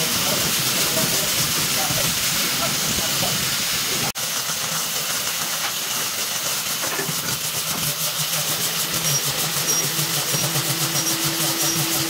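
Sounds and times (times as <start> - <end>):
angle grinder sanding wood: 6.8 - 12.0.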